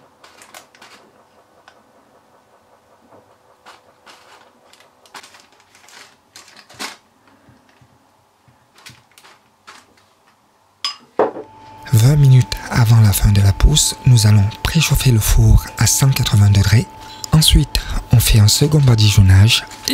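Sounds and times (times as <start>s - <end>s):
parchment paper rustling: 0.0s - 1.2s, 3.6s - 10.4s.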